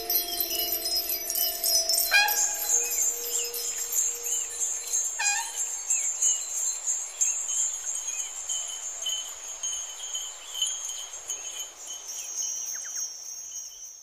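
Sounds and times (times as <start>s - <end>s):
faint pulsing trill: 0.0s - 5.8s
high shimmering chimes: 0.0s - 14.0s.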